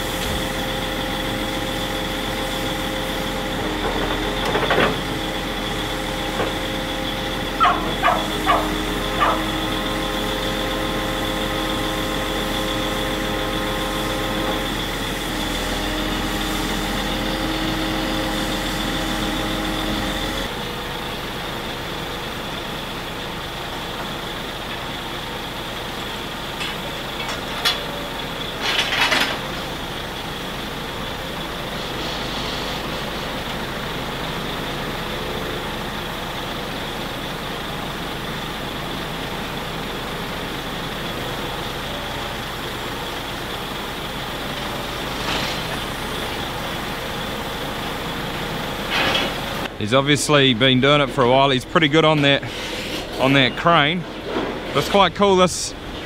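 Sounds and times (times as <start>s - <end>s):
diesel truck engine running: 0.0s - 56.0s
hydraulic crane whine: 0.0s - 56.0s
scrap metal clanks: 28.6s - 29.4s.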